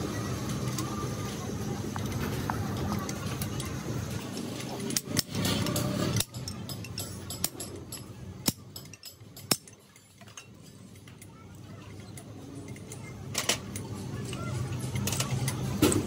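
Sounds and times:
metal tools clinking: 3.0 - 16.0.

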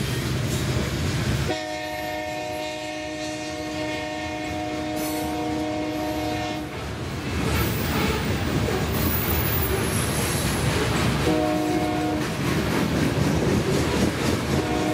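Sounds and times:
train wheels rolling on rails: 0.0 - 14.9
locomotive horn: 1.5 - 6.8, 7.4 - 8.4, 11.2 - 12.3, 14.6 - 14.9.

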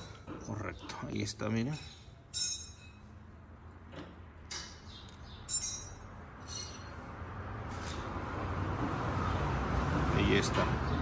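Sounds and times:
light metallic clinks: 5.5 - 7.0.

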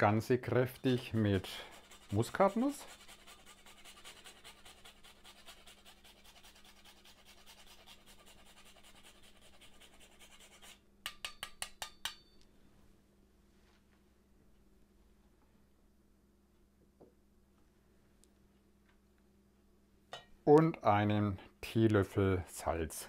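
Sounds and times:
nutmeg scraping on grater: 0.6 - 10.8
sharp ringing taps: 11.1 - 12.5.

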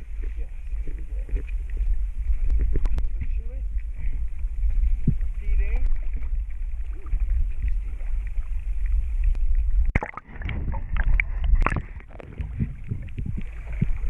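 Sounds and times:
river water sloshing: 0.0 - 14.0
water gurgling: 0.0 - 14.0
sharp water splashes: 5.0 - 14.0.

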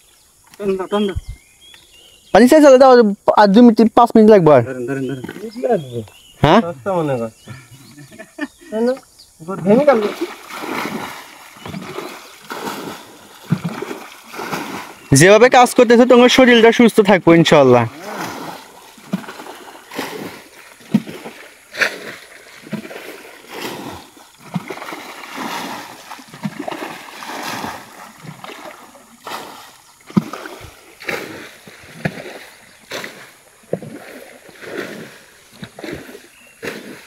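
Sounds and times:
bucket splashing water: 9.5 - 16.8, 17.6 - 37.0.

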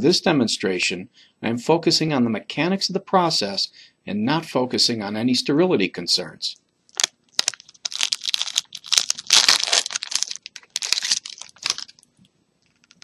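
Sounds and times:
wrapper crinkling and tearing: 6.9 - 12.1, 12.7 - 13.0.

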